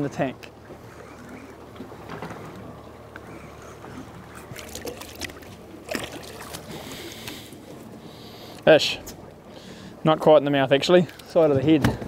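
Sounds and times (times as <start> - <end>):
water lapping around boat: 0.0 - 12.0.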